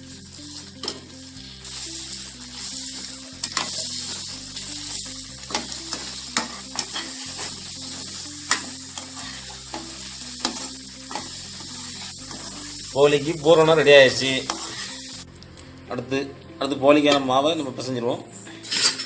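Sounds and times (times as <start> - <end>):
syrup sizzling: 0.0 - 17.5
spoon scraping and knocking pan: 3.4 - 4.2, 5.5 - 11.4, 14.4 - 14.9.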